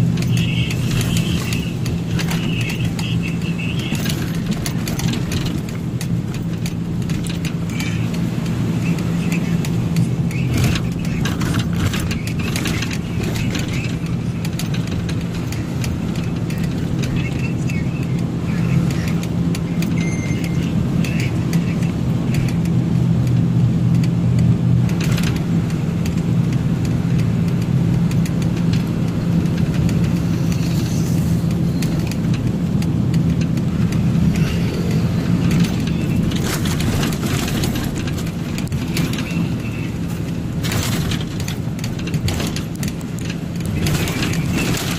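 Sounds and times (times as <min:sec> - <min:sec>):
road noise: 0:00.0 - 0:44.9
truck engine running: 0:00.0 - 0:44.9
rattles: 0:00.1 - 0:08.0, 0:27.2 - 0:44.9.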